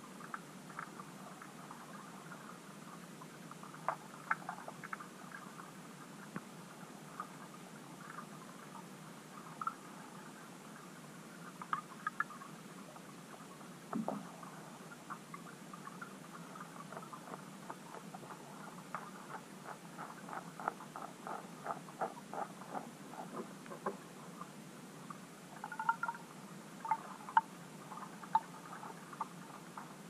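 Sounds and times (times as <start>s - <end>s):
underwater clicking: 11.6s - 12.4s, 15.1s - 24.0s, 25.6s - 26.2s, 26.8s - 29.9s.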